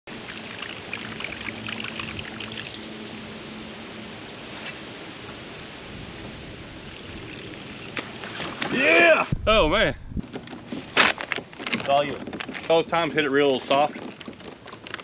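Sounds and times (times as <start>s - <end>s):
water trickling and washing: 0.1s - 3.1s, 4.6s - 9.4s
fish thrashing and splashing: 7.0s - 8.7s.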